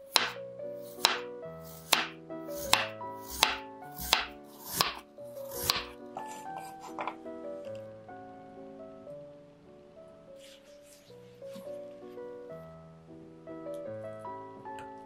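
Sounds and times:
soft background music: 0.0 - 15.0
knife chopping on wooden board: 0.1 - 7.2.

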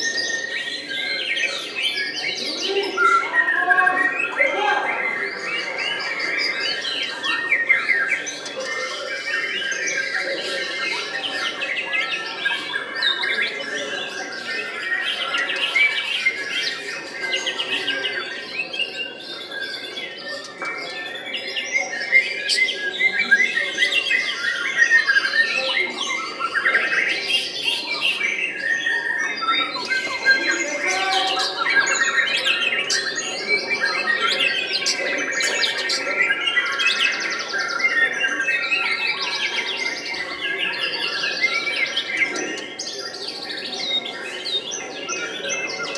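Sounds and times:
birds singing chirps and trills: 0.0 - 45.9.

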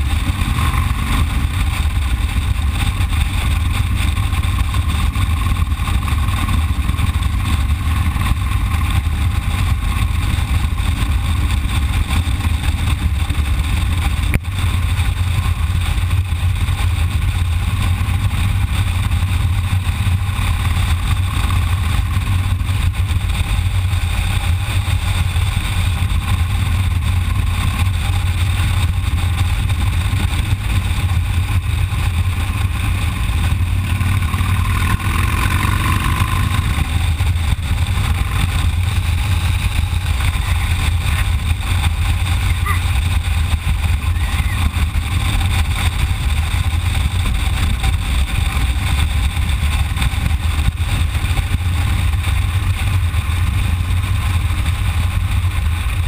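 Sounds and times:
motorcycle engine rumble: 0.0 - 56.0.

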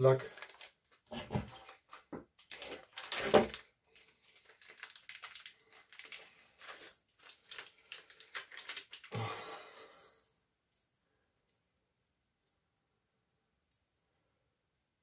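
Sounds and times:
plastic bag crinkling: 0.2 - 10.1.

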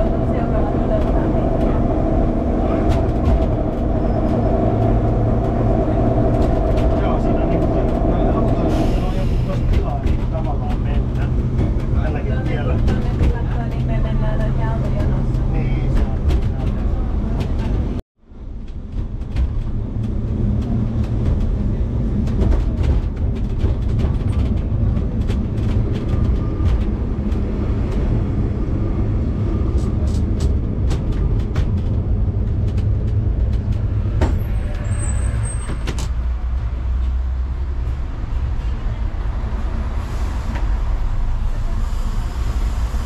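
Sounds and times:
tram rumbling on rails: 0.0 - 43.0
rattles and clicks: 18.6 - 28.3, 29.8 - 36.2.

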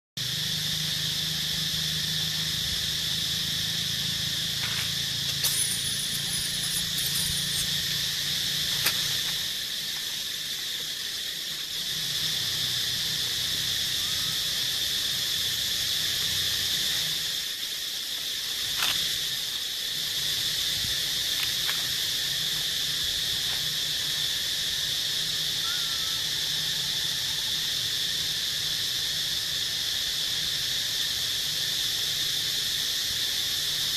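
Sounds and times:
high-pitched insect chorus: 0.2 - 33.9.

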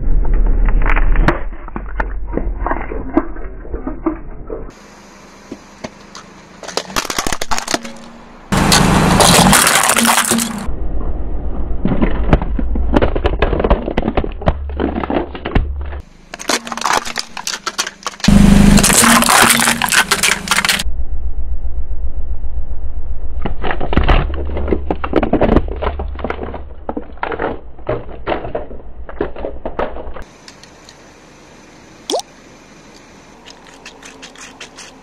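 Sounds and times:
car low rumble: 0.0 - 35.0
grit crunching under tyre: 4.7 - 10.7, 11.8 - 20.9, 23.4 - 31.1, 32.8 - 35.0.

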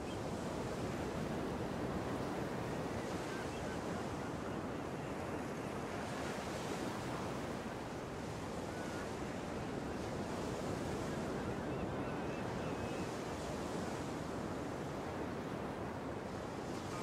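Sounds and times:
waves breaking over a reef: 0.0 - 17.0.

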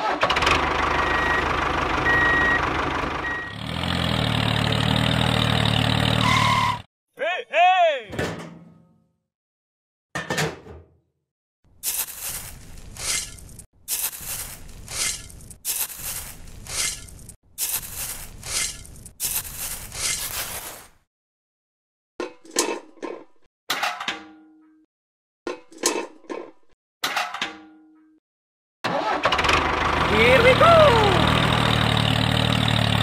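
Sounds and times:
shovel scraping sand and cement: 11.8 - 21.0.

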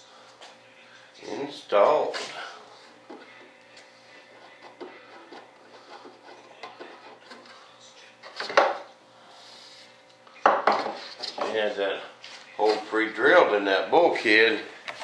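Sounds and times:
faint rubbing and tapping: 3.1 - 7.6.

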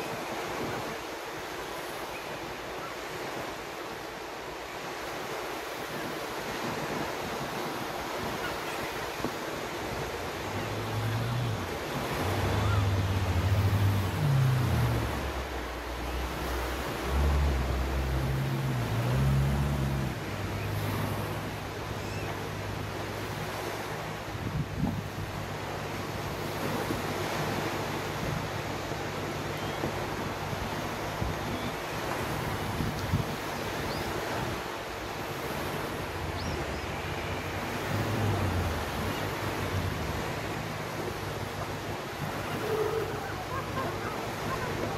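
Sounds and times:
waves washing onto sand: 0.0 - 44.9
wind on microphone: 5.8 - 44.9
engine low hum: 9.5 - 44.9.

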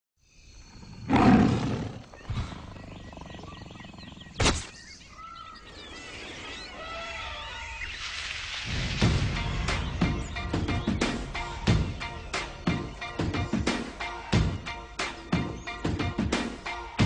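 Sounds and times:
birds chirping and whistling: 0.3 - 8.6, 9.2 - 16.6
big cat roar: 0.8 - 4.4
sharp crack: 4.4 - 4.8.

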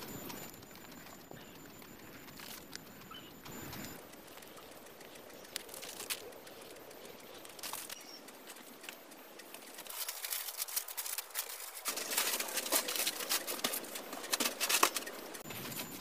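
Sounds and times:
plastic sheeting rustling and crinkling: 7.4 - 16.0.

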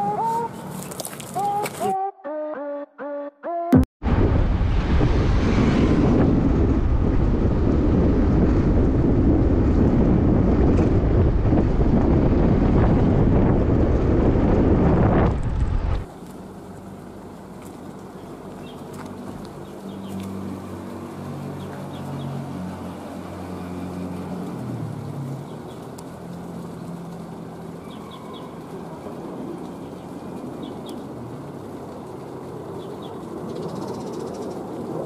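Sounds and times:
wind rushing over microphone: 4.0 - 16.1.

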